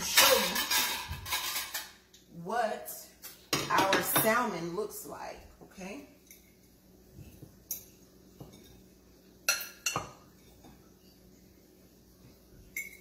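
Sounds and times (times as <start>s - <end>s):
dishes and utensils clinking: 0.0s - 2.1s, 3.5s - 4.4s, 7.3s - 11.2s, 12.6s - 13.0s.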